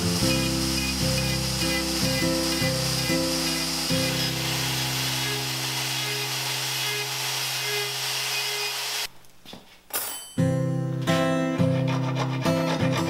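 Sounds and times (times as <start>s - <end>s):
drill motor whine: 0.0s - 9.1s
sanding disc hissing on wood: 0.0s - 9.1s.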